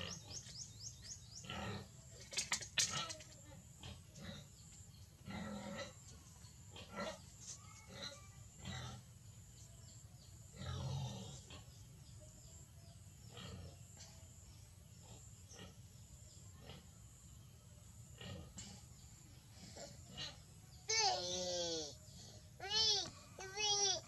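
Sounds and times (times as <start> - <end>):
faint animal calls and grunts: 0.0 - 24.0.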